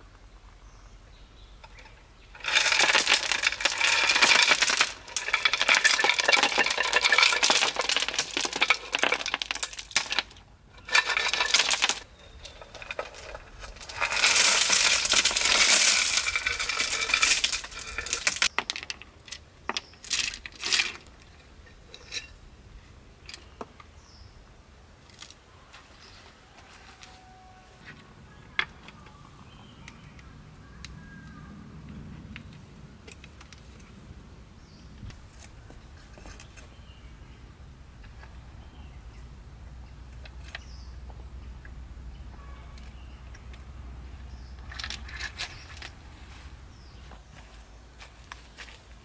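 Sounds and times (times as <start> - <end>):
pebbles clattering on concrete: 1.7 - 22.4, 42.3 - 47.4.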